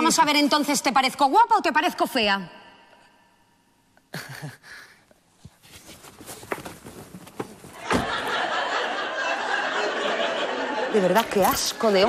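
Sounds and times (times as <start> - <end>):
light knocks and shuffles: 5.4 - 8.4
burst of laughter: 7.8 - 10.8.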